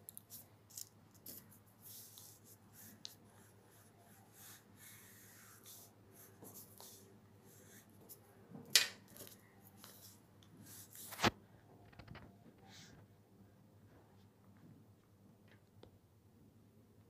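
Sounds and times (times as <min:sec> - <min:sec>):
crayon scratching on paper: 0:00.3 - 0:08.2.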